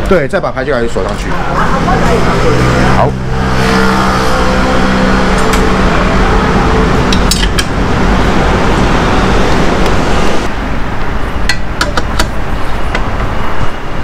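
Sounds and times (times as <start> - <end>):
vehicle rumble: 0.7 - 14.0.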